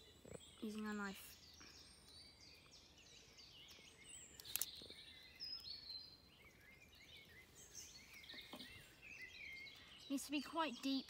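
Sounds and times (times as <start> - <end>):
faint songbirds chirping: 0.0 - 11.0
sharp click: 4.4 - 4.8.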